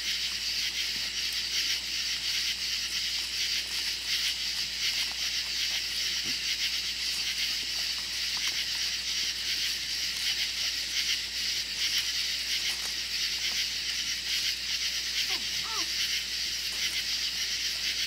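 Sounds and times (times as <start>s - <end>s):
night insects chorus: 0.0s - 18.0s
puppies yelping: 3.0s - 17.2s.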